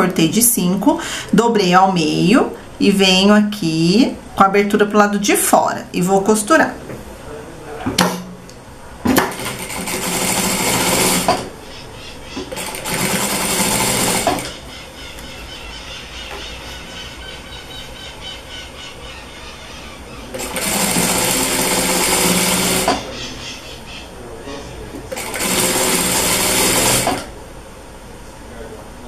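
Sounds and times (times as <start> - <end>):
sewing machine stitching: 9.2 - 11.5, 12.5 - 14.5, 20.3 - 23.1, 25.1 - 27.3.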